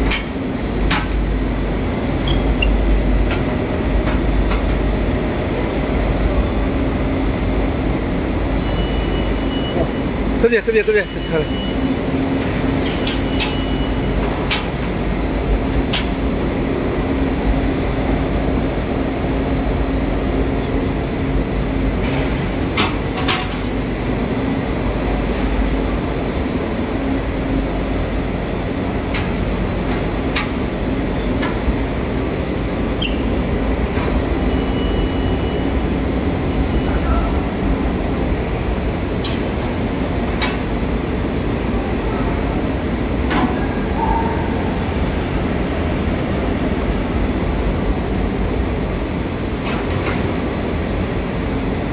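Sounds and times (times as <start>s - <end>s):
machine drone: 0.0s - 51.9s.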